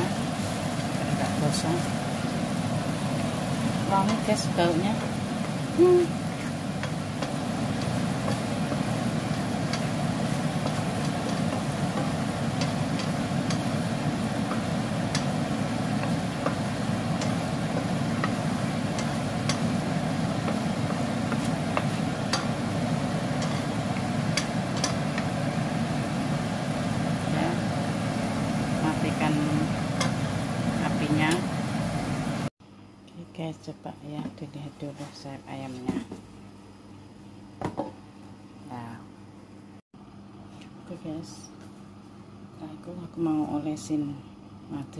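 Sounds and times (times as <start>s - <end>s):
steady low hum: 0.0s - 44.9s
wooden spatula stirring: 2.9s - 26.3s.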